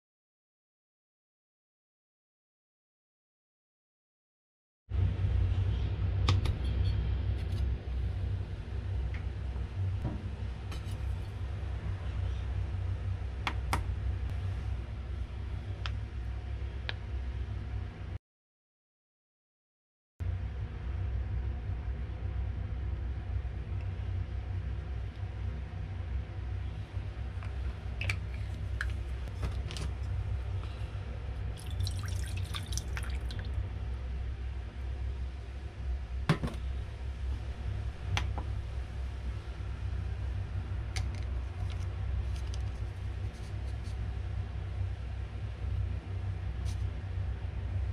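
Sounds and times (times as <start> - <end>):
steady low hum: 4.9 - 18.2, 20.2 - 47.9
drips and taps: 31.6 - 33.5
water splashing into metal bowl: 31.6 - 33.5.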